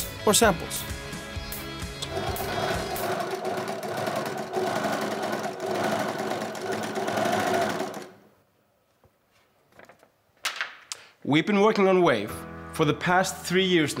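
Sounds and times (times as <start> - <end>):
sewing machine running: 2.0 - 8.3.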